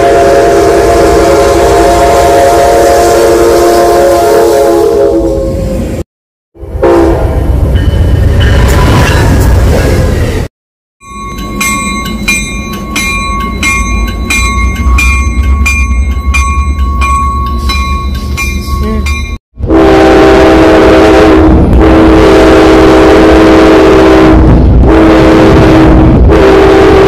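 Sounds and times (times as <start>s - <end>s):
train air horn blast: 0.0s - 6.0s, 6.8s - 7.4s, 19.6s - 27.0s
train rumbling: 0.0s - 6.0s, 6.6s - 27.0s
train bell ringing: 7.7s - 9.5s, 11.0s - 19.4s.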